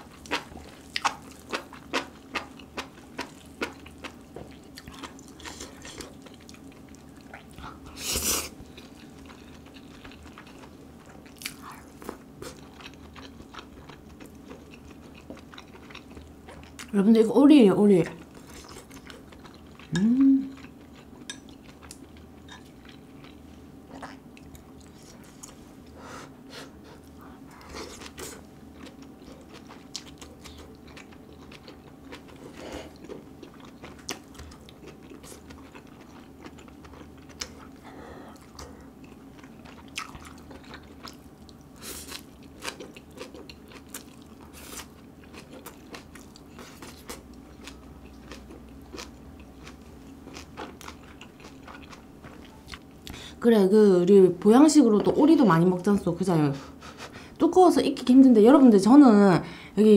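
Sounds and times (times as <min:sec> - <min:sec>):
faint steady hum: 0:00.0 - 0:59.9
person chewing and biting food: 0:26.9 - 0:53.2.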